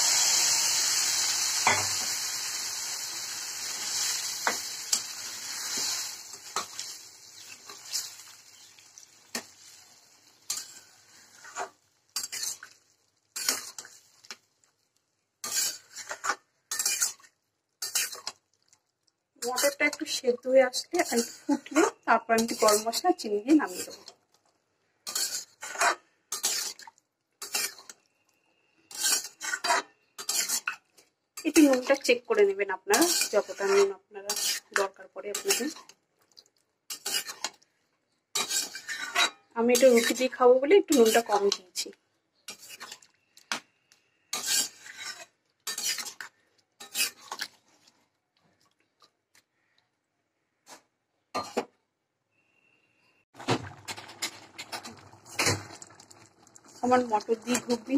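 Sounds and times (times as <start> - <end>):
wooden spatula scraping metal pan: 10.5 - 12.7, 13.4 - 14.4, 15.4 - 17.2, 20.9 - 24.1, 25.1 - 26.8, 28.9 - 30.8, 32.9 - 35.9, 36.9 - 37.6, 38.4 - 41.7, 42.5 - 43.0, 44.3 - 47.5, 56.8 - 57.9.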